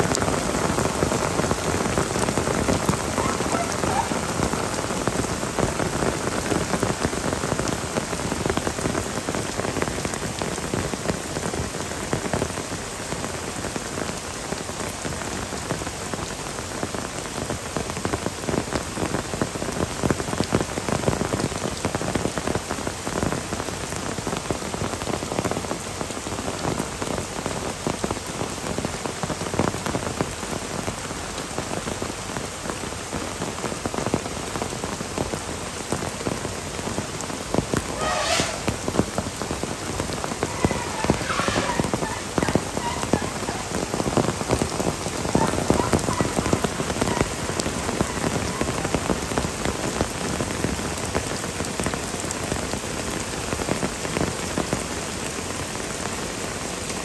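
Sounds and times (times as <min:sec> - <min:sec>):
heavy rain: 0:00.0 - 0:57.0
brief high-pitched sounds: 0:37.9 - 0:38.8, 0:40.5 - 0:43.7.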